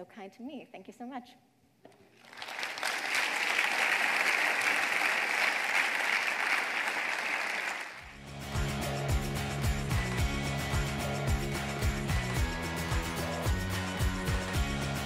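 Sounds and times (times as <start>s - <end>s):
audience applauding: 2.2s - 8.1s
music with a beat: 8.1s - 15.0s.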